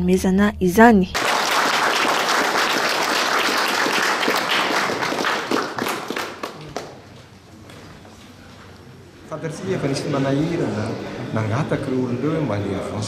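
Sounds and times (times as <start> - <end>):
people clapping: 1.2 - 8.4.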